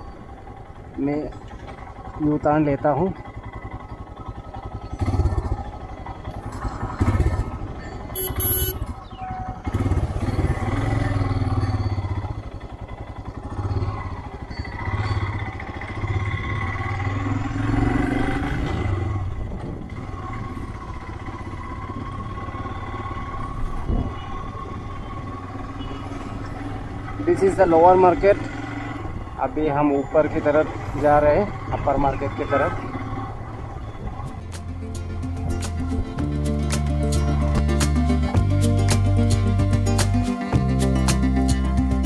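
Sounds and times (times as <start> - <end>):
motorcycle engine running: 0.0 - 42.0
brief shrill sound: 8.2 - 8.8.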